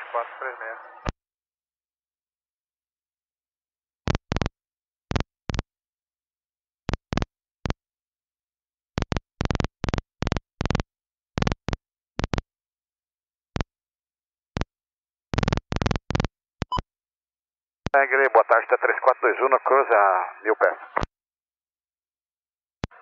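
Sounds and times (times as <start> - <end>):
radio static bursts: 18.0 - 21.1.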